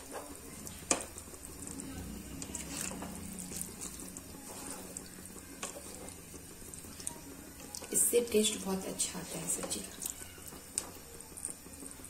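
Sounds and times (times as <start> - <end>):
spatula scraping pan: 0.0 - 1.0, 2.4 - 6.3
spatula squelching through curry: 2.4 - 7.1.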